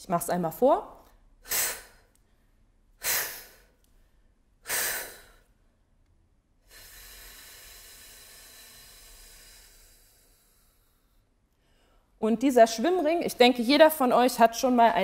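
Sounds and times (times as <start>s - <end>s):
woman's forceful breaths: 1.2s - 5.9s, 6.6s - 12.2s
long hissing exhale: 3.0s - 3.7s, 4.6s - 5.4s, 6.6s - 11.2s.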